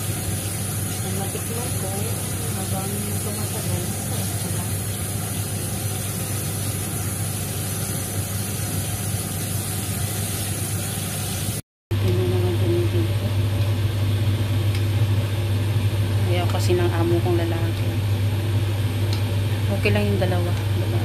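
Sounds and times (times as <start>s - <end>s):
tap water running into strainer: 0.0s - 11.6s.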